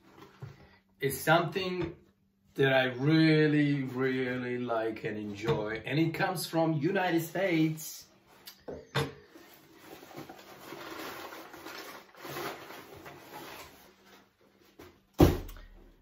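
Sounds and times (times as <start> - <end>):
cardboard and paper rustling: 9.3 - 15.1.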